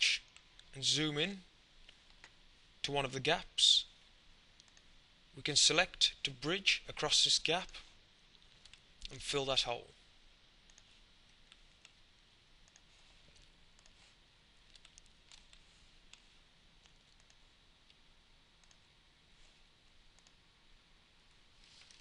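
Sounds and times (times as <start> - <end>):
faint mouse clicks: 4.6 - 4.9, 8.3 - 9.2, 10.7 - 12.0, 12.6 - 14.0, 14.7 - 18.0, 18.6 - 18.9, 20.1 - 20.4.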